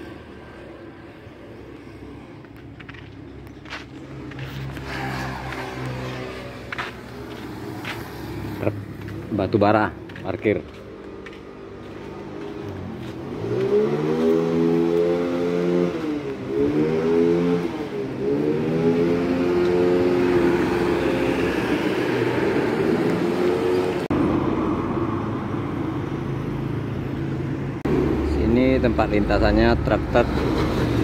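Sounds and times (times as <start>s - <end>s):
truck diesel engine revving: 12.0s - 24.1s.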